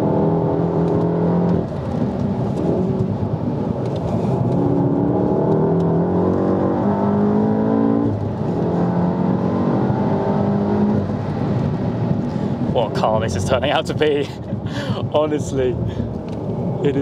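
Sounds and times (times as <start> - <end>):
car engine revving from cabin: 4.0 - 12.2.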